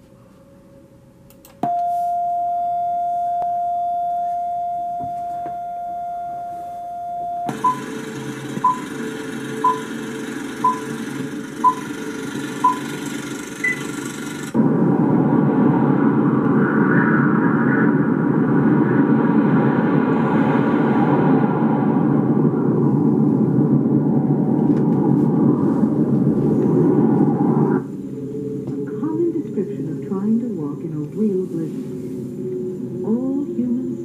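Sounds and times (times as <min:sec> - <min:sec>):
steady test tone: 0:00.7 - 0:16.7
short countdown beeps: 0:06.9 - 0:08.0, 0:08.6 - 0:09.0, 0:09.6 - 0:09.9, 0:10.6 - 0:12.0, 0:12.6 - 0:13.0, 0:13.6 - 0:13.9
even rushing noise: 0:14.5 - 0:34.0.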